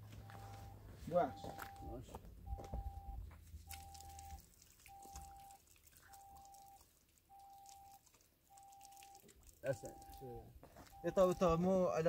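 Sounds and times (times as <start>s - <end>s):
electronic beeps: 0.2s - 5.6s, 6.2s - 11.6s
water splashing over hands: 3.4s - 11.4s.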